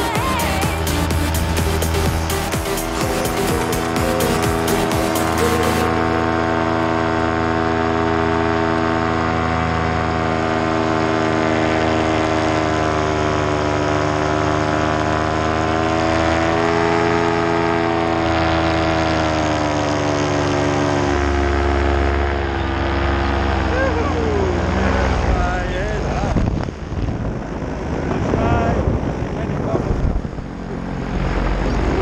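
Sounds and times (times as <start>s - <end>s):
paramotor engine droning: 0.0s - 32.0s.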